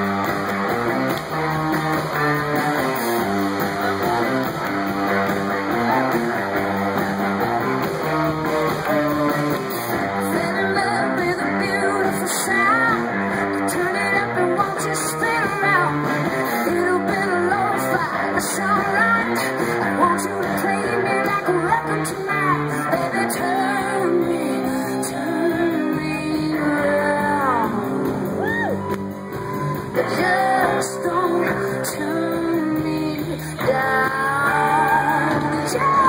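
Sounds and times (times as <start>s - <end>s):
drums: 0.0s - 36.0s
electric guitars: 0.0s - 36.0s
woman singing: 10.2s - 28.8s, 29.9s - 36.0s.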